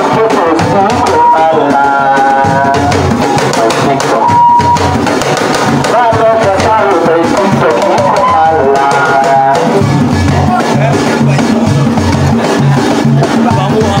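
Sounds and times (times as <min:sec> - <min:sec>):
people singing: 0:00.0 - 0:04.4, 0:05.9 - 0:09.9
hand drums playing: 0:00.0 - 0:14.0.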